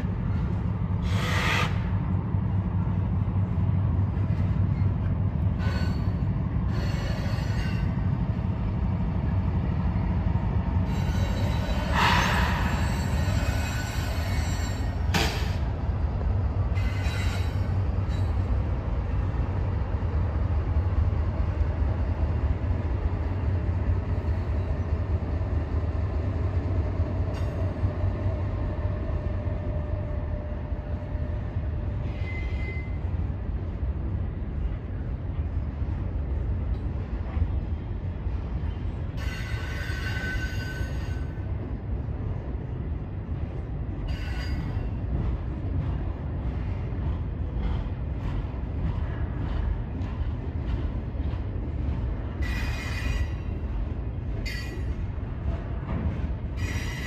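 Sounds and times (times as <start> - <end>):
train wheel squeals: 0.0 - 2.2, 4.2 - 8.3, 10.8 - 15.7, 16.7 - 18.6, 24.0 - 25.5, 27.2 - 33.4, 38.6 - 41.7, 43.9 - 57.0
freight train rumbling: 0.0 - 57.0.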